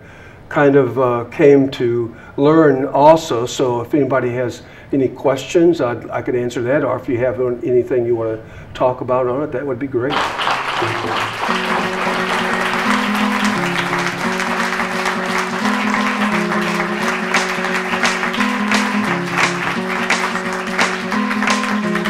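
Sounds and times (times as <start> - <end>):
audience applause: 10.1 - 22.0
plucked string melody: 11.0 - 22.0.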